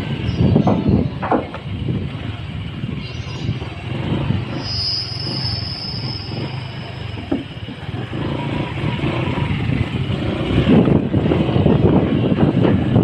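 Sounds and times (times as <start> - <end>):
motorcycle engine running: 0.0 - 13.0
knock on wooden bridge: 0.6 - 1.7.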